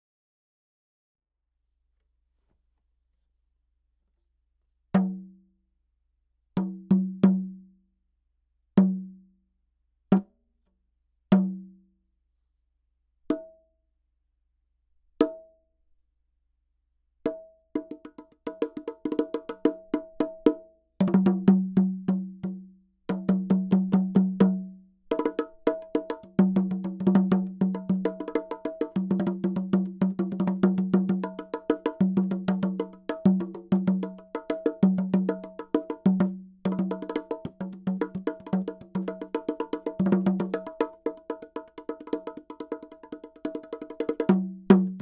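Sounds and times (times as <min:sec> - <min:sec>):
bongos struck by hand: 0:13.3 - 0:13.6, 0:15.2 - 0:15.5, 0:17.3 - 0:45.0.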